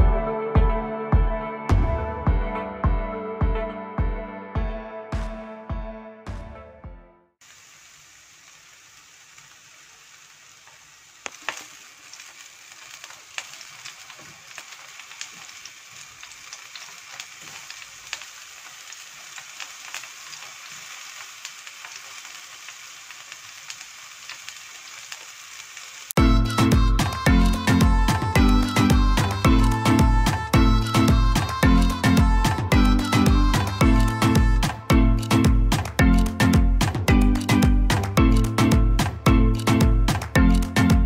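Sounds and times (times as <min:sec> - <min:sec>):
chicken sizzling on a grill: 0:07.4 - 0:34.5
sharp pops and crackles: 0:10.6 - 0:26.2, 0:27.8 - 0:41.0.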